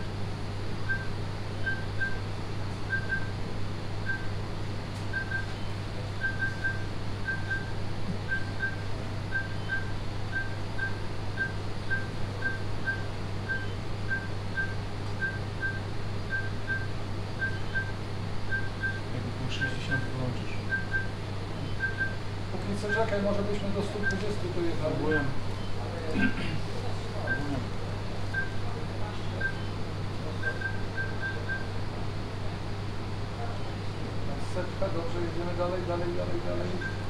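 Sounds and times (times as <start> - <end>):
low equipment hum: 0.0 - 37.0
patient monitor beeping: 0.9 - 2.2, 2.9 - 3.4, 4.0 - 4.4, 5.1 - 25.9, 27.2 - 27.6, 28.3 - 28.6, 29.4 - 29.8, 30.4 - 31.7, 36.7 - 37.0.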